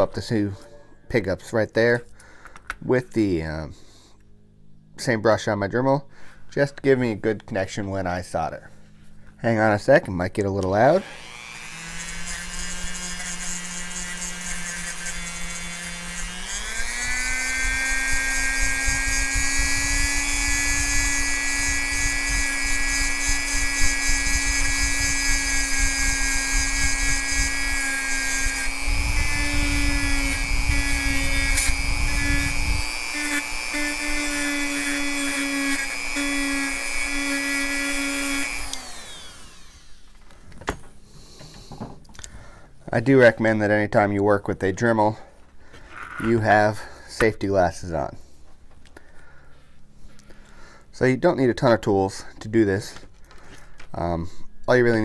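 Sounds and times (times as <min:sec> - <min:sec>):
rotary tool motor whining: 0:10.8 - 0:40.4.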